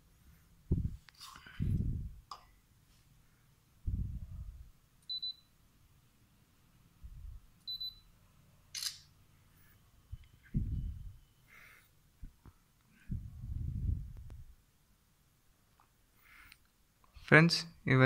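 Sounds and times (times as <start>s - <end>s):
short high beeps: 5.1s - 5.5s, 7.7s - 8.0s
camera shutter click: 8.7s - 9.1s.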